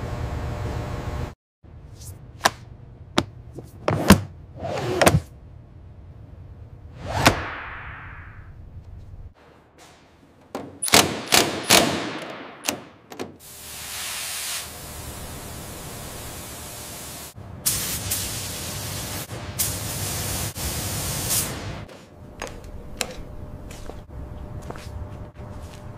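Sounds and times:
paint spray gun hissing: 13.4s - 21.6s.

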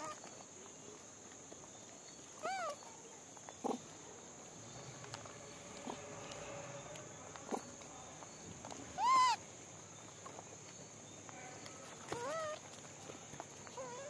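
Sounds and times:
monkey call: 2.4s - 3.0s, 8.8s - 9.4s, 11.8s - 12.7s, 13.7s - 14.0s.

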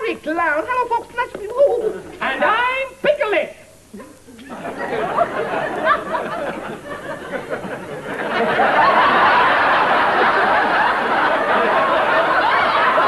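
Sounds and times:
audience laughing: 4.4s - 13.0s.

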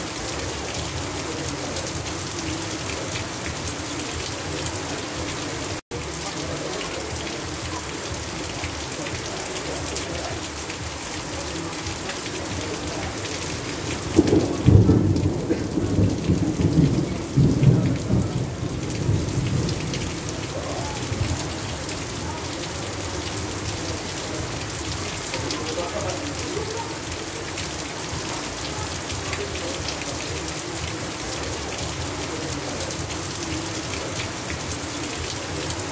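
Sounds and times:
heavy rain: 0.0s - 35.9s
thunder rumbling: 13.8s - 22.2s.

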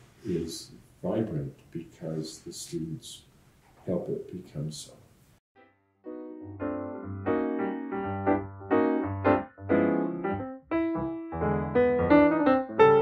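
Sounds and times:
piano music: 5.6s - 13.0s.

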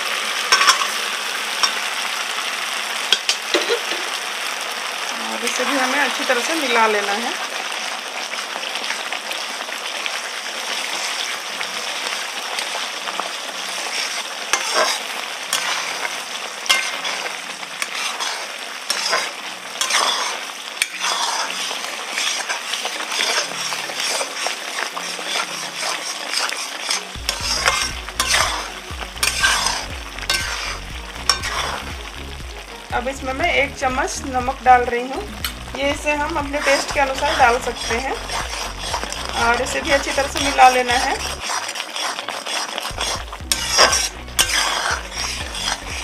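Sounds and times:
spatula scraping a pan: 0.0s - 1.8s, 10.7s - 32.0s, 35.4s - 46.0s
food sizzling in hot oil: 0.0s - 46.0s.

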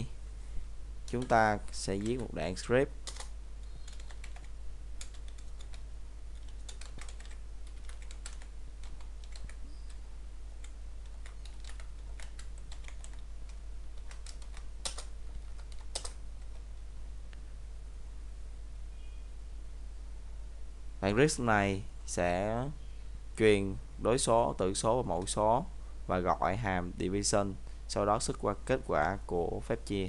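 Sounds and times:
steady low hum: 0.0s - 30.0s
computer keyboard typing: 1.1s - 2.3s, 3.0s - 10.0s, 10.6s - 16.6s.

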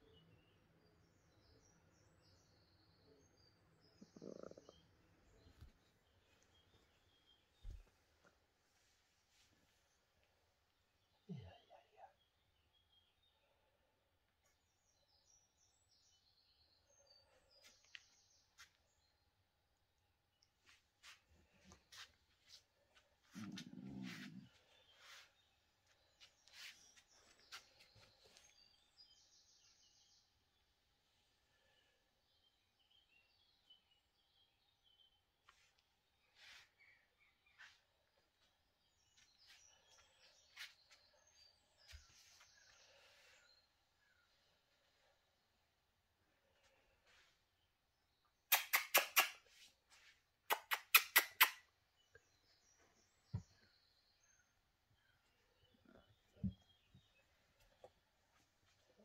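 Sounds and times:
soft breathy rustles: 20.6s - 28.8s.

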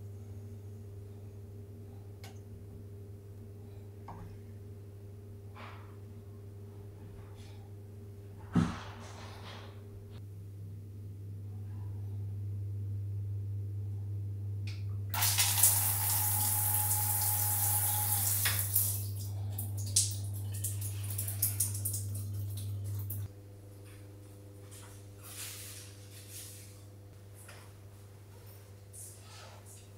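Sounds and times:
shower spraying onto tile: 15.2s - 19.2s
water dripping and splashing: 15.2s - 23.3s.

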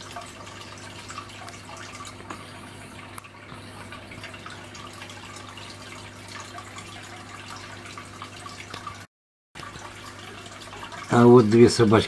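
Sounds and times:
low pump hum: 0.0s - 12.0s
water trickling and splashing: 0.0s - 12.0s
faint drip-like ticks: 8.6s - 8.9s.

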